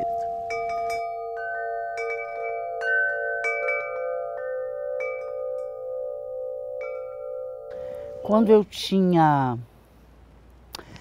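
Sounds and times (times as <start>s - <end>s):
metal chimes ringing: 0.0s - 8.7s.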